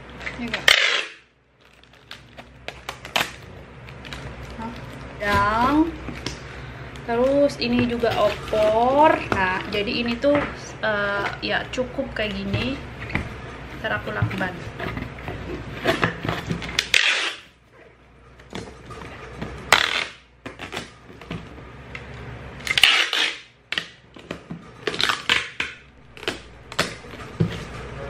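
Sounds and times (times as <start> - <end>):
packing tape pulled off roll: 0.2 - 5.0, 15.8 - 17.5, 19.7 - 21.0, 22.6 - 24.0, 24.8 - 27.3.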